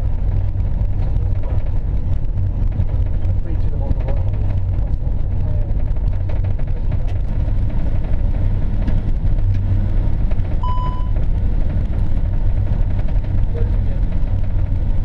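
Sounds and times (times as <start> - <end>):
airplane rolling on runway: 0.0 - 15.0
short high beep: 10.6 - 11.2.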